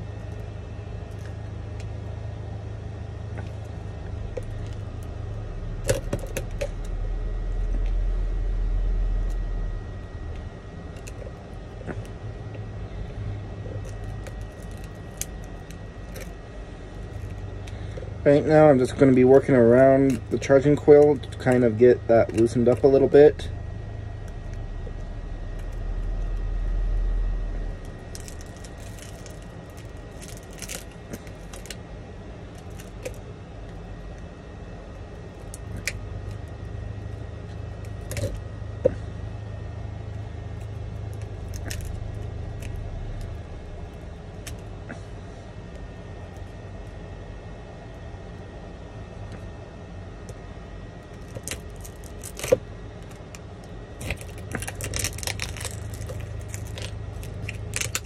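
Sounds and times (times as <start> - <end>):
low rumble: 0.0 - 48.3, 53.8 - 58.0
steady low hum: 0.0 - 58.0.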